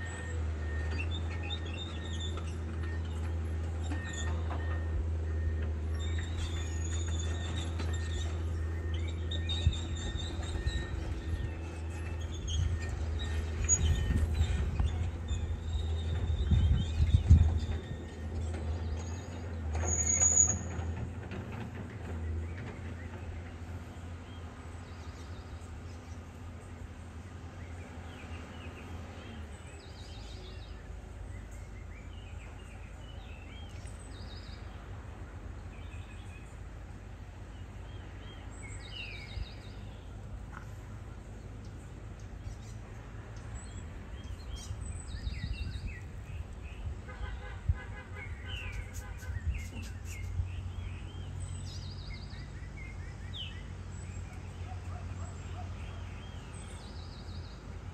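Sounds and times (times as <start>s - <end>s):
birds chirping and whistling: 0.0s - 20.9s, 37.6s - 40.1s, 43.5s - 47.0s, 48.2s - 57.6s
distant diesel engines humming: 0.0s - 57.9s.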